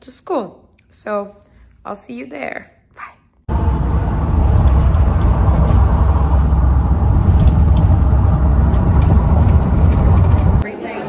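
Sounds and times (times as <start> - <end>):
road noise: 3.5 - 10.6
wind buffeting microphone: 3.5 - 10.6.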